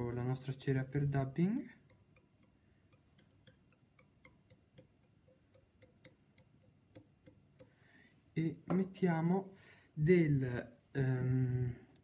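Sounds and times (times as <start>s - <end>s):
faint light clicks and ticks: 1.7s - 7.8s.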